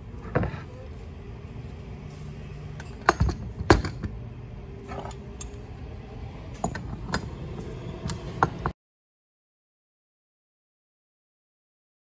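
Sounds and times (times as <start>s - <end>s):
pipe wrenches clanking on metal: 2.7s - 4.2s, 4.8s - 5.7s, 6.5s - 8.7s.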